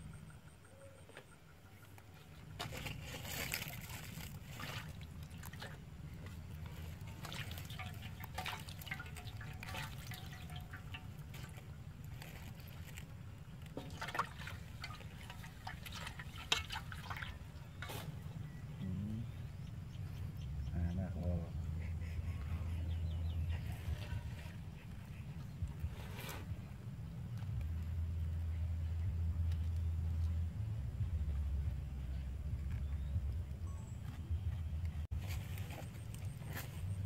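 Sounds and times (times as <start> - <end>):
small splashes and drips: 2.6 - 18.1
water sloshing in metal wok: 6.7 - 18.3.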